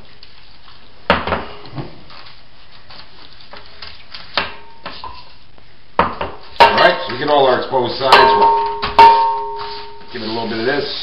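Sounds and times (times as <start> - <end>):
hands handling wet meat: 0.0 - 1.1, 2.0 - 5.4
metal pan knocking and clattering: 6.6 - 7.2, 8.1 - 10.0.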